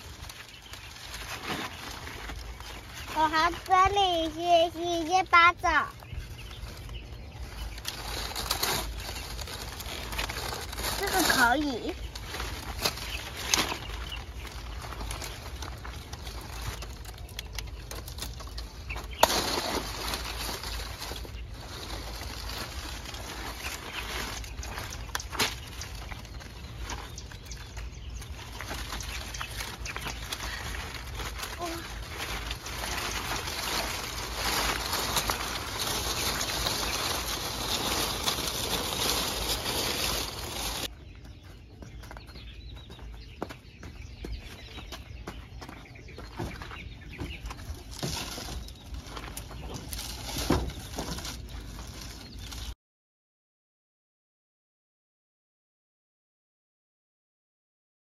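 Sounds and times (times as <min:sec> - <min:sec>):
low steady rumble: 0:00.0 - 0:52.7
rustling paper and leaves: 0:00.0 - 0:52.8
snapping and cracking: 0:16.9 - 0:20.7.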